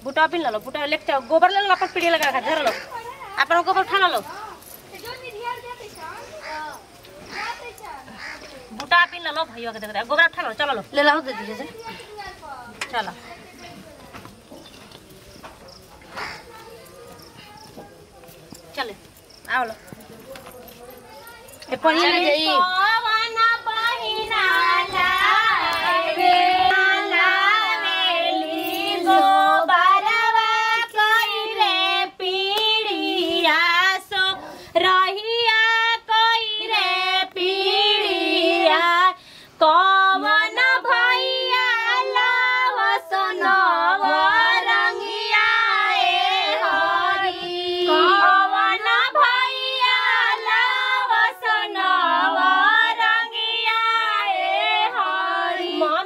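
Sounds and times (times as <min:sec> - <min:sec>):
women singing unaccompanied: 0:21.6 - 0:56.0.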